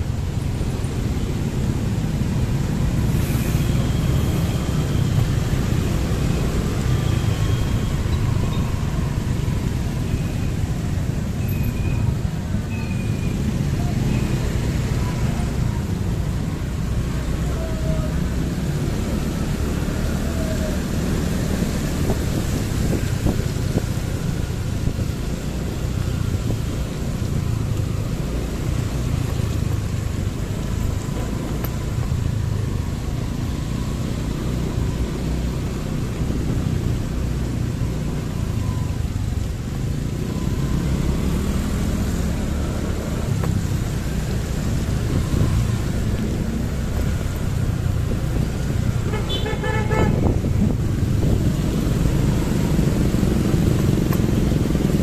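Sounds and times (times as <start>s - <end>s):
traffic and wind rumble: 0.0s - 55.0s
vehicle horn beeping: 49.0s - 50.4s.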